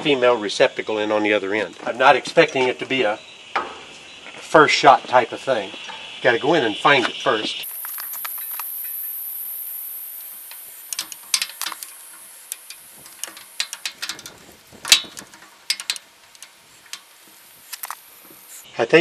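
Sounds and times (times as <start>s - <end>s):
metal shaft knocking and clicking: 10.5s - 18.0s.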